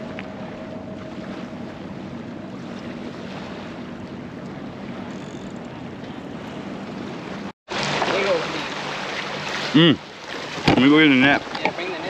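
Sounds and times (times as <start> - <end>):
surf washing against rocks: 7.3 - 12.0.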